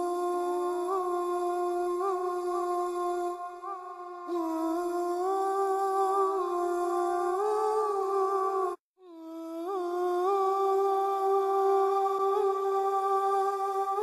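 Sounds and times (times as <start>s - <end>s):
person humming long notes: 4.3s - 14.0s.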